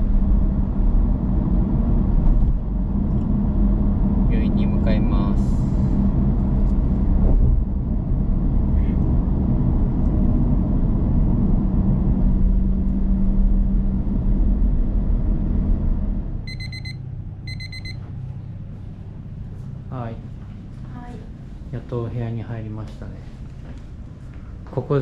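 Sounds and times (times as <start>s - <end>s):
car cabin road noise: 0.0s - 21.9s
short electronic beeps: 16.5s - 18.0s.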